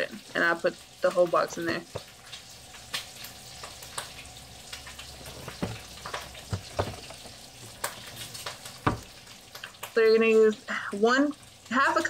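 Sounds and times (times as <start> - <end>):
light taps and knocks on countertop: 5.2 - 9.2.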